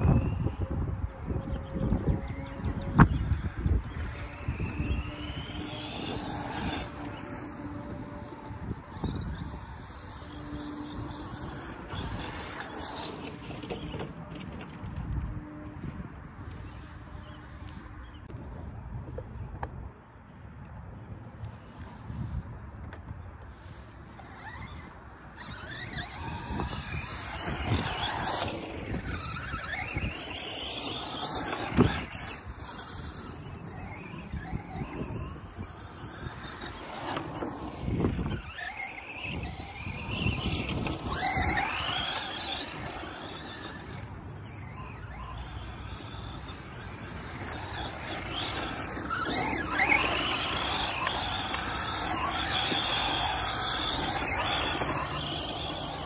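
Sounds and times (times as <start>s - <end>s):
electric motor whining: 0.0s - 17.8s, 23.8s - 56.0s
tyres scrubbing on sandy dirt: 3.9s - 15.1s, 23.5s - 56.0s.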